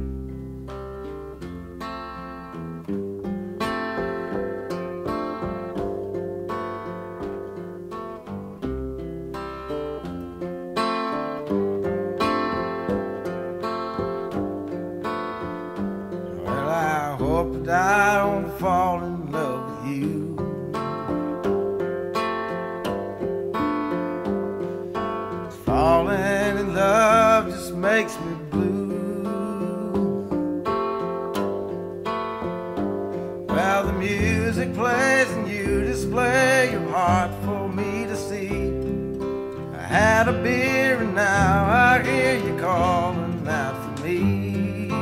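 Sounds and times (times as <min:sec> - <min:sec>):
strummed acoustic guitar: 0:00.0 - 0:45.0
low bass notes: 0:16.1 - 0:19.4.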